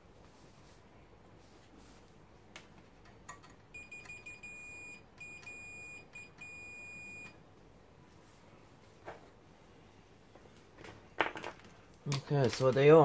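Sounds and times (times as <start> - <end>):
multimeter high beeps: 3.8 - 7.4.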